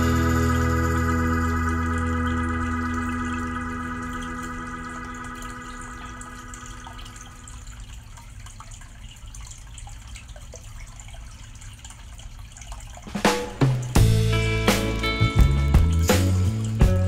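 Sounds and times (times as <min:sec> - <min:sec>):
held musical tone: 0:00.0 - 0:08.0, 0:13.4 - 0:17.0
aquarium water bubbling: 0:00.0 - 0:17.0.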